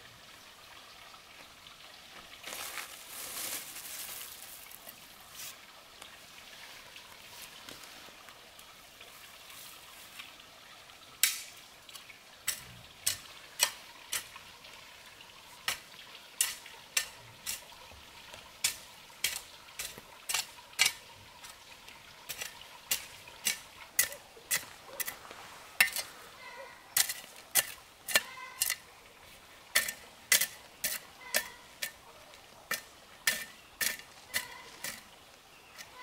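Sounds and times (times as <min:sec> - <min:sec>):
faint steady hiss: 0:00.0 - 0:36.0.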